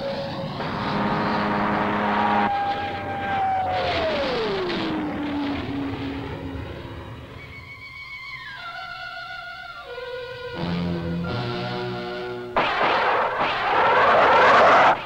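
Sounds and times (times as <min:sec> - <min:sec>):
jet engine whine: 0:00.0 - 0:08.6
jet aircraft flying past: 0:00.2 - 0:08.0, 0:12.8 - 0:15.0.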